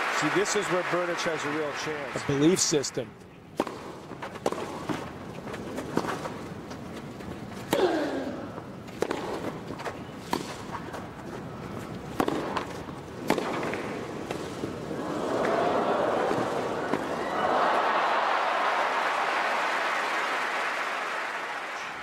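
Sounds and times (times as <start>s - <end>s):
crowd noise: 0.0s - 3.3s, 9.8s - 22.0s
tennis ball struck by racquets: 3.6s - 5.1s, 8.9s - 9.6s, 10.3s - 10.7s, 12.1s - 14.5s.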